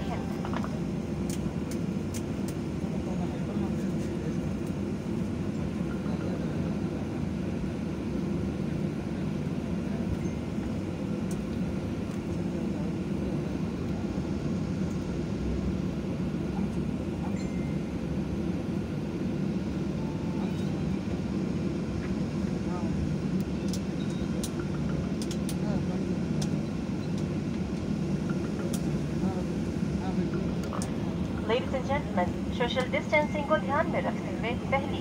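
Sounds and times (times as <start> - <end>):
airliner cabin engine rumble: 0.0 - 35.0.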